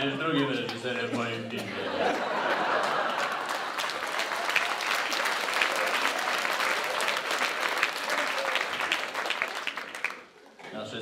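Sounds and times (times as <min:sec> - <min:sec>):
audience applauding: 0:02.2 - 0:10.6.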